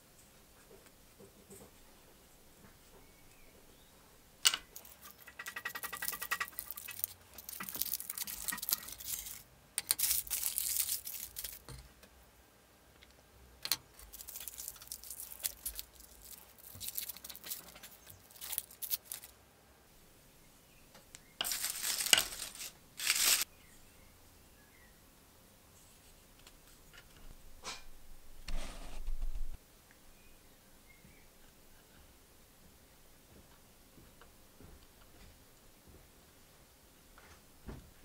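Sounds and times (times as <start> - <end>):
wood cracking: 4.5 - 11.9, 13.6 - 19.3.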